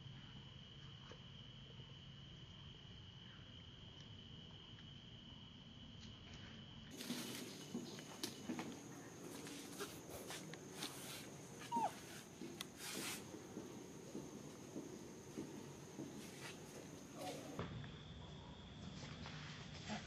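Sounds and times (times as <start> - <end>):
clicks and scuffs of monkeys moving: 6.3 - 17.6
baby monkey whimpering squeak: 11.6 - 12.2.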